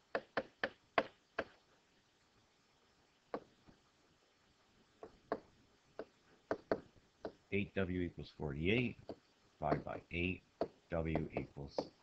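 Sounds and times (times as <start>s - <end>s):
stylus tapping on surface: 5.0s - 7.4s, 9.0s - 10.0s, 10.6s - 12.0s.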